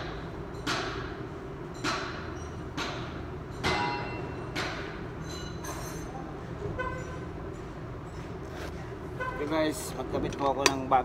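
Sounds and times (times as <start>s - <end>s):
sharp metal knocks: 1.8s - 5.0s.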